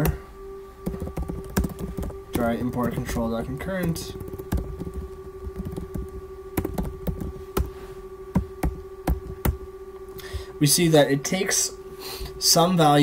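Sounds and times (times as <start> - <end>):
steady electrical hum: 0.0 - 13.0
computer keyboard typing: 0.8 - 7.7.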